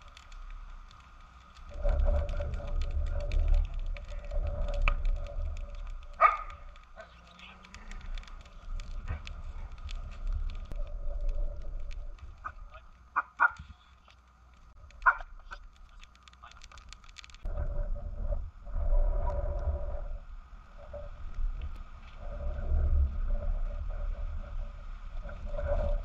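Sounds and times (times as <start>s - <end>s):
low rumble: 0.0s - 13.2s, 14.3s - 26.0s
campfire crackling: 0.0s - 26.0s
dogs barking: 6.2s - 7.2s, 12.4s - 13.7s, 15.0s - 15.4s.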